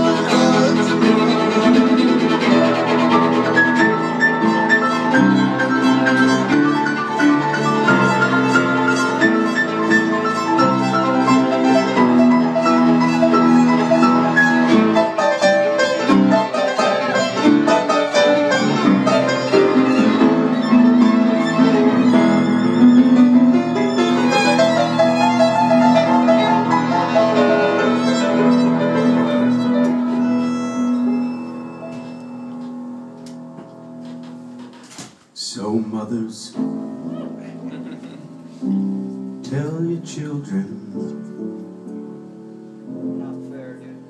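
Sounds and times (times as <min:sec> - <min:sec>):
violin played with a bow: 0:00.0 - 0:32.7
piano accompaniment: 0:00.0 - 0:44.0.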